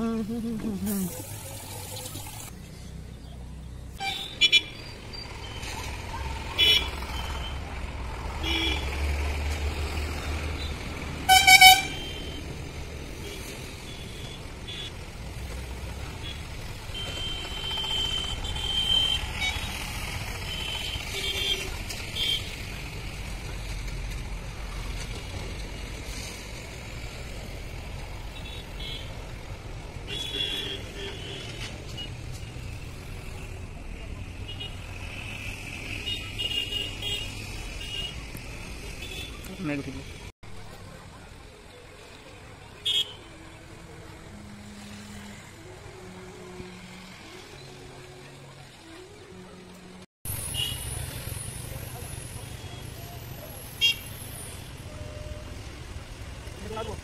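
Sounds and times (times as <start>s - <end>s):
road traffic rumbling: 0.0s - 57.0s
vehicle horn toot: 11.3s - 12.4s.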